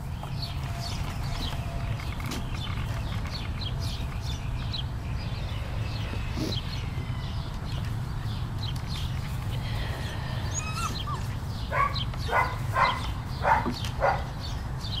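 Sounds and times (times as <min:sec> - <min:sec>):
puppy barking: 0:10.6 - 0:14.3.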